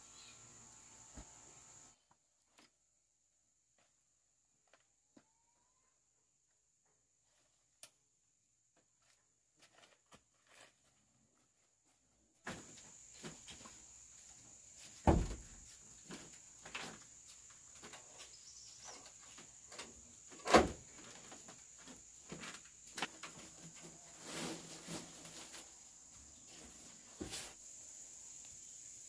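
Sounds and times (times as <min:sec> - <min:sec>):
high insect drone: 0:12.5 - 0:29.0.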